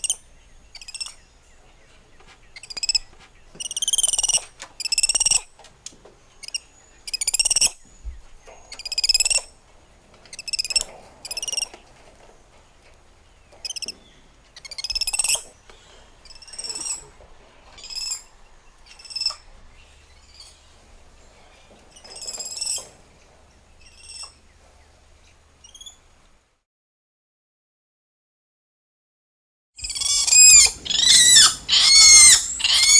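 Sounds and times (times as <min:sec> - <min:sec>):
spider monkey calls: 0:03.6 - 0:05.5, 0:06.4 - 0:07.8, 0:14.6 - 0:15.4, 0:16.2 - 0:17.0, 0:18.9 - 0:19.4, 0:29.8 - 0:32.9.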